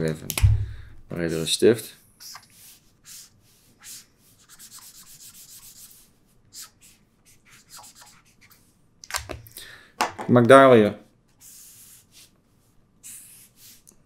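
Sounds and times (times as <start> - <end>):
marker scratching on paper: 2.2 - 8.6, 11.4 - 12.4, 13.0 - 13.9.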